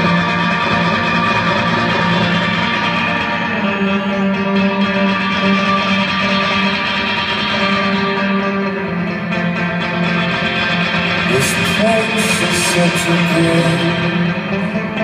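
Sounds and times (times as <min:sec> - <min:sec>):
electric guitar sustained notes: 0:00.0 - 0:15.0
man singing: 0:11.3 - 0:15.0.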